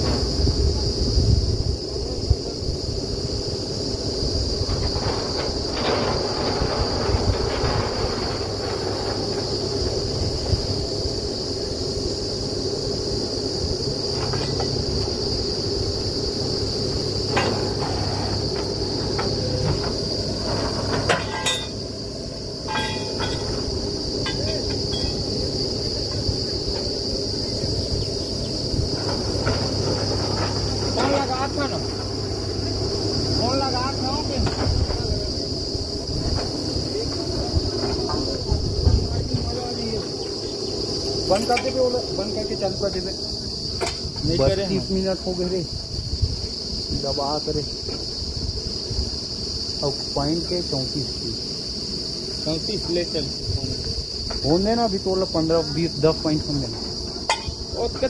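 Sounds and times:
drilling rig engine drone: 0:00.0 - 0:45.2
sharp knocks: 0:57.2 - 0:57.6.

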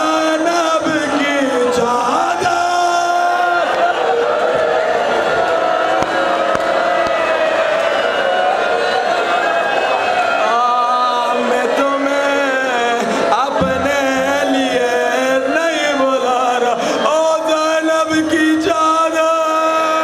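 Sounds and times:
men chanting a lament: 0:00.0 - 0:04.2, 0:10.4 - 0:20.0.

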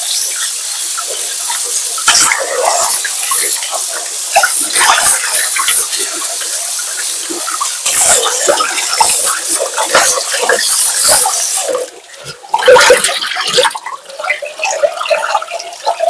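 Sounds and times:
tap water running into sink: 0:00.0 - 0:16.0
water sloshing and splashing: 0:07.5 - 0:16.0.

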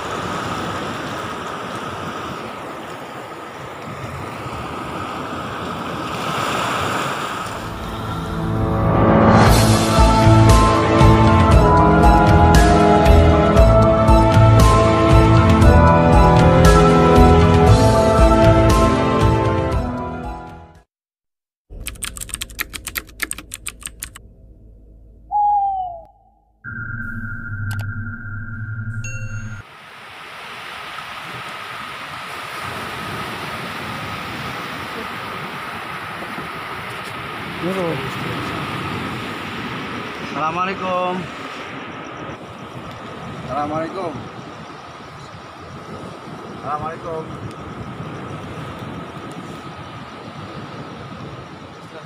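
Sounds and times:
surf washing onto beach: 0:00.0 - 0:09.9, 0:29.6 - 0:52.0
music: 0:08.2 - 0:20.8
typing sound effect clicks: 0:21.7 - 0:24.2, 0:27.6 - 0:27.9
short falling tone: 0:24.2 - 0:29.6
wind on microphone: 0:31.1 - 0:52.0.

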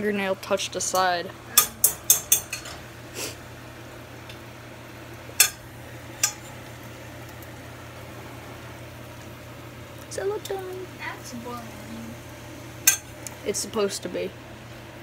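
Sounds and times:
meat sizzling in fat: 0:02.8 - 0:15.0
fork clinking against pan: 0:12.9 - 0:13.1.

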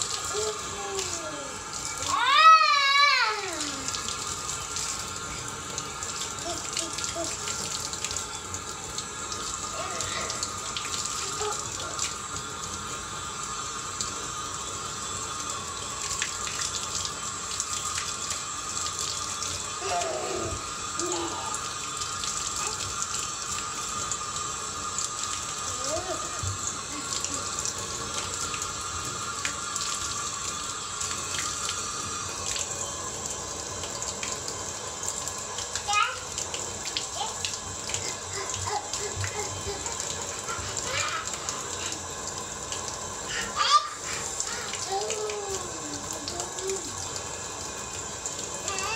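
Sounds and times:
faucet running into sink: 0:00.0 - 0:48.9.

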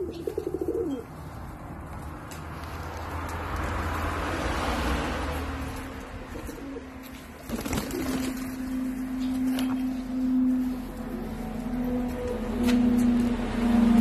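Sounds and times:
pigeons cooing: 0:00.0 - 0:01.4, 0:06.3 - 0:10.4
wings flapping: 0:07.4 - 0:08.7.

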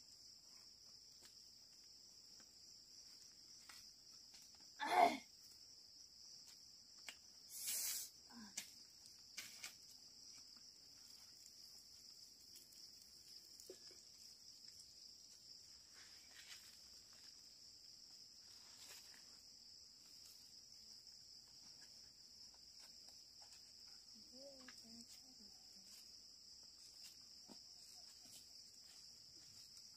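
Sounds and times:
insects shrilling: 0:07.4 - 0:08.4.

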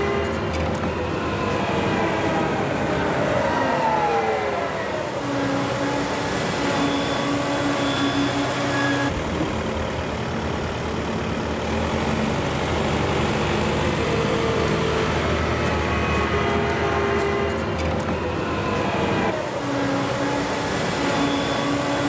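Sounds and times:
falling whine: 0:00.0 - 0:10.2
combine harvester engine hum: 0:00.0 - 0:22.0.

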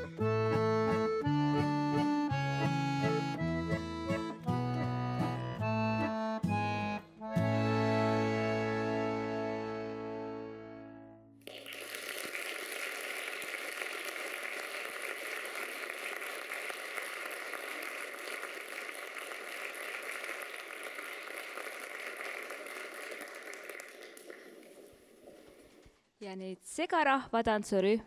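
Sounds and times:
audience applauding: 0:11.4 - 0:25.8.

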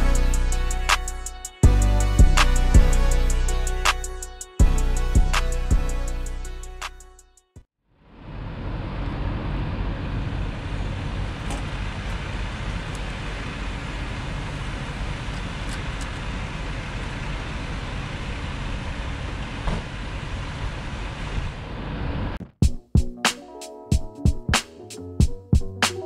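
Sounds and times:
road traffic rumble: 0:08.0 - 0:22.4.

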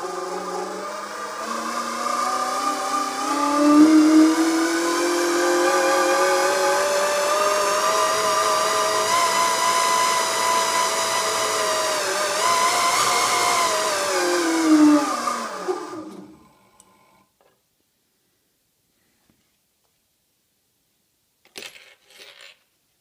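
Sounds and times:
electric motor whine: 0:00.0 - 0:17.2.

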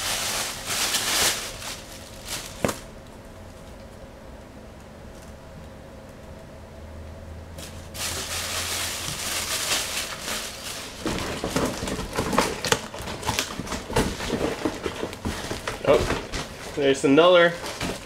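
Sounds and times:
packaging rustling and crinkling: 0:00.0 - 0:02.9, 0:07.6 - 0:18.0.

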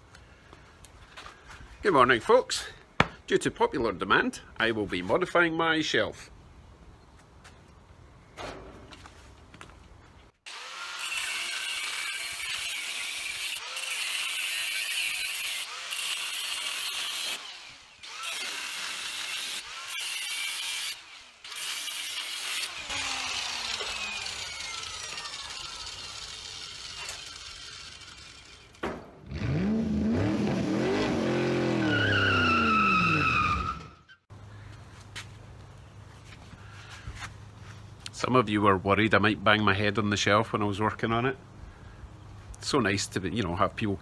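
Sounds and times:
angle grinder cutting steel: 0:10.5 - 0:28.8
engine revving: 0:29.2 - 0:33.8
tyre squeal: 0:31.7 - 0:34.2.

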